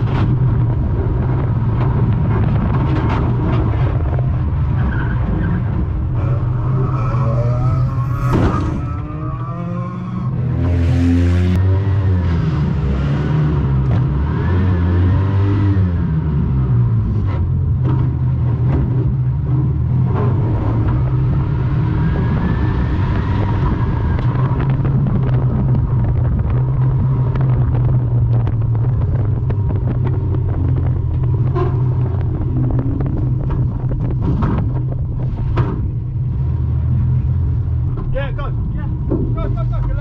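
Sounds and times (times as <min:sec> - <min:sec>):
racing car engine running: 0:00.0 - 0:40.0
rising and falling whine: 0:06.0 - 0:11.6.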